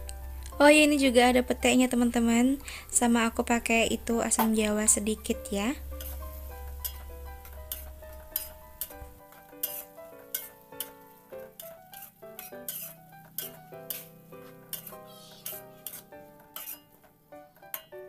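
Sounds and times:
background music: 0:00.0 - 0:18.0
metal spatula scraping a wok: 0:04.8 - 0:17.9.

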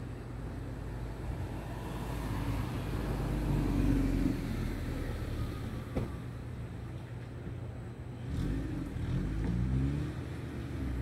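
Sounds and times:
car passing: 0:00.9 - 0:06.1.

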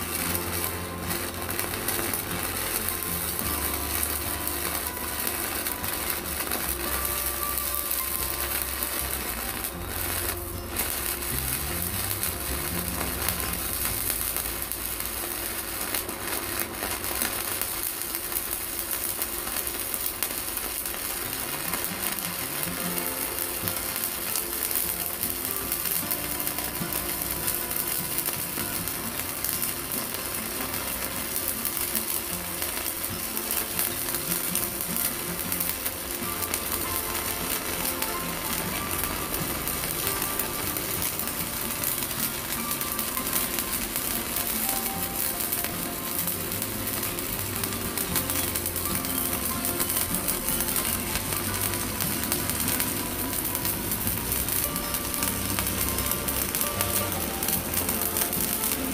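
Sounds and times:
welding arc crackling: 0:00.0 - 0:58.9.

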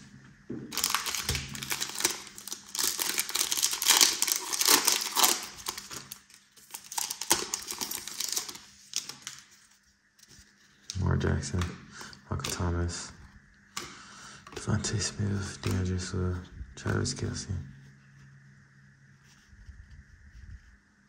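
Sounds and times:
foil wrapper crinkling and tearing: 0:00.7 - 0:11.1.

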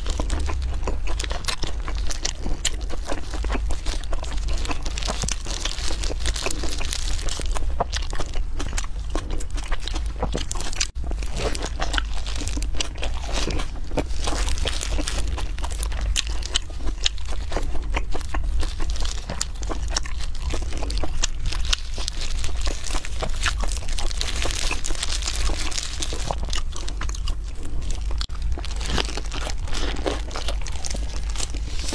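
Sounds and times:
crunching and wet chewing: 0:00.0 - 0:31.9
low steady hum: 0:00.0 - 0:31.9
plastic gloves crinkling: 0:00.0 - 0:31.9.

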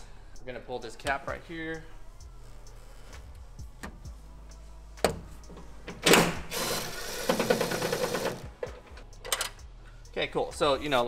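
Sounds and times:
cordless ratchet buzzing: 0:06.4 - 0:08.5.

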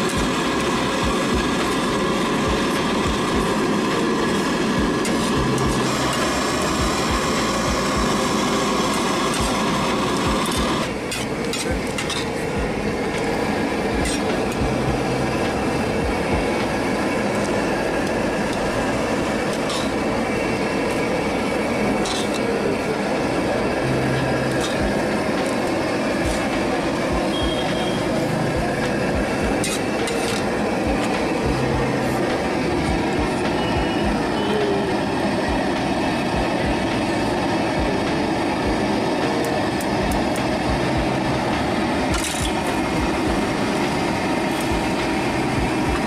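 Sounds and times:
loud steady din: 0:00.0 - 0:46.0
metal ladle scraping a wok: 0:19.5 - 0:20.0, 0:22.0 - 0:22.4, 0:29.6 - 0:30.6.

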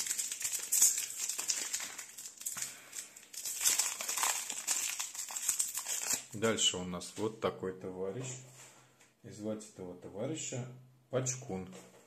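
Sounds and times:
plastic packet tearing and crumpling: 0:00.0 - 0:06.4.

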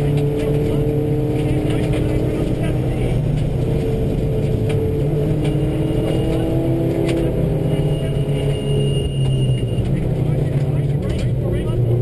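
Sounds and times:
rally car engine at speed: 0:00.0 - 0:12.0
tyre and road rumble: 0:00.0 - 0:12.0.

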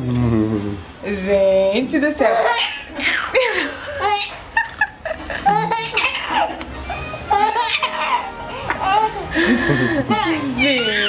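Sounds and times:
baby laughing: 0:02.3 - 0:11.0.

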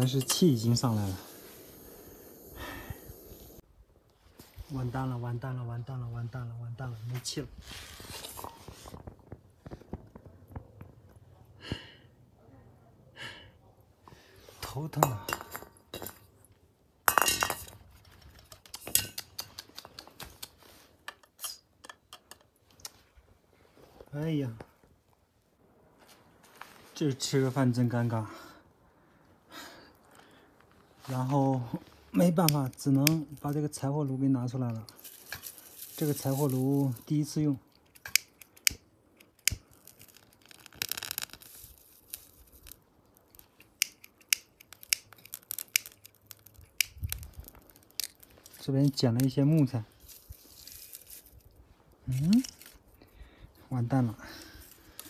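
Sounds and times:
dry grass crackling as it burns: 0:00.0 - 0:03.6, 0:31.1 - 0:33.9, 0:34.6 - 0:53.0, 0:53.8 - 0:55.0.

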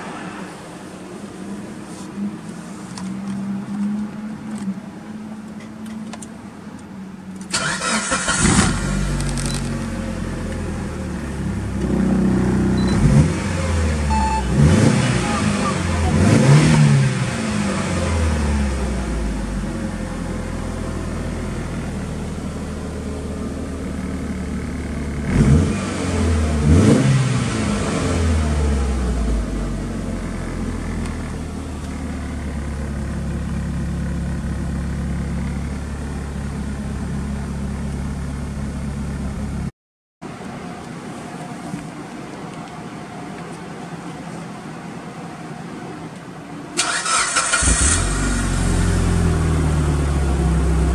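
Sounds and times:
car engine idling and revving: 0:00.0 - 0:50.9.

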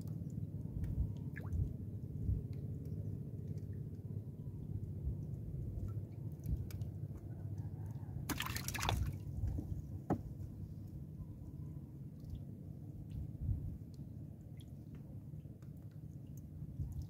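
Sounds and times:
low steady rumble: 0:00.0 - 0:17.0
water dripping off fishing net: 0:08.3 - 0:09.2.

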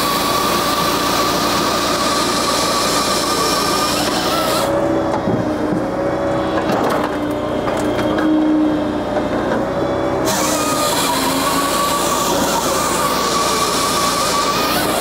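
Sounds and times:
saw cutting log hiss and whine: 0:00.0 - 0:05.0, 0:09.8 - 0:15.0
engine and hydraulic drone: 0:00.0 - 0:15.0.

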